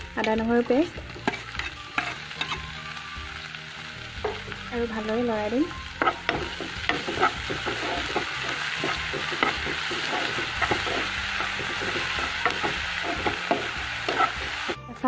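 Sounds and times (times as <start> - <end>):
food sizzling in hot oil: 0.0 - 14.8
spatula scraping and knocking pan: 0.6 - 2.6, 4.2 - 4.6, 6.0 - 14.8.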